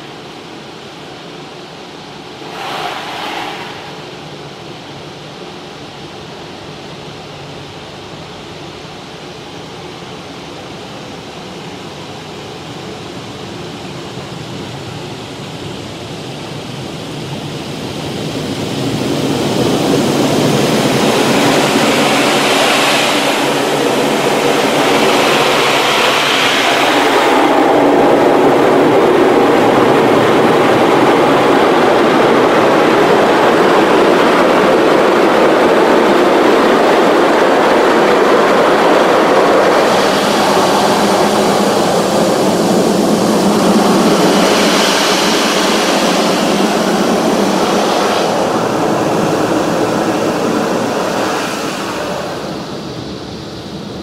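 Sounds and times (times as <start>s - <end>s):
car wash brushes whirring: 38.0s - 52.4s.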